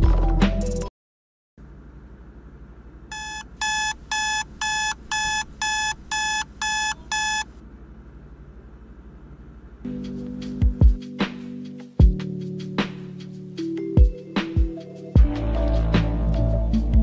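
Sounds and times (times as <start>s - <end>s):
low steady hum: 1.6s - 10.4s
electronic alarm beeping: 3.1s - 7.5s.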